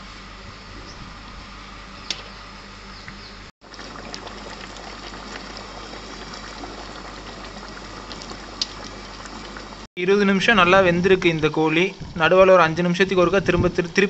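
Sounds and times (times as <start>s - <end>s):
ladle scooping and pouring: 3.6s - 9.9s
gravy bubbling: 3.6s - 14.0s.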